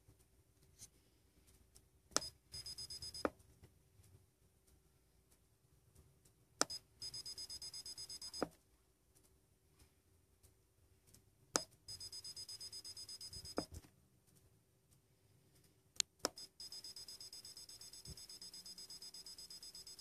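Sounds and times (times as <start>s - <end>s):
quick run of high beeps: 2.2s - 3.2s, 6.7s - 8.4s, 11.9s - 13.6s, 16.4s - 20.0s.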